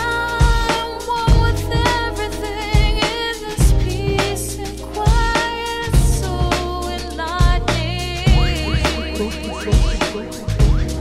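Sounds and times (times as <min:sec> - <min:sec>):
sustained bass: 0:01.3 - 0:05.2, 0:05.8 - 0:11.0
deep beats: 0:03.6 - 0:04.4, 0:05.9 - 0:11.0
held melodic notes: 0:08.3 - 0:11.0.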